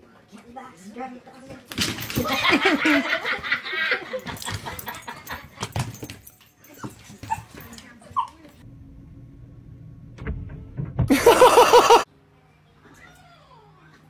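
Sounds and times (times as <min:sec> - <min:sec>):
dog whimpering yips: 0:06.7 - 0:08.4
knocks and clatter: 0:10.2 - 0:11.3.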